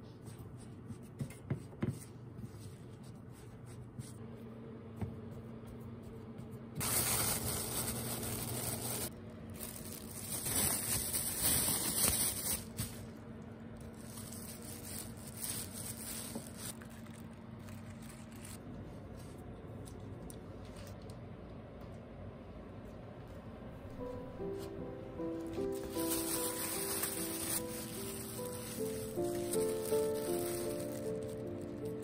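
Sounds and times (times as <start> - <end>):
plastic bag crinkling: 6.8 - 13.1, 13.8 - 18.6, 25.3 - 32.0.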